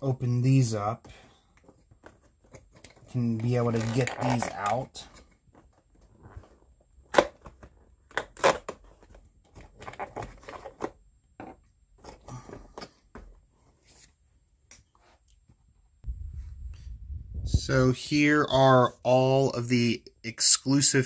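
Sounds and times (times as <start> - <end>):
plastic and cardboard crackling: 1.5 - 12.4.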